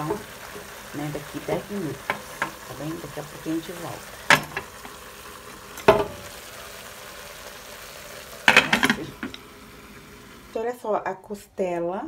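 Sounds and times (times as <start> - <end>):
meat sizzling in a pot: 0.0 - 10.7
metal lid clanking on pot: 4.2 - 5.0, 5.8 - 6.3, 8.4 - 9.4
metal lid clicks and clanks: 4.3 - 5.0, 8.5 - 9.4.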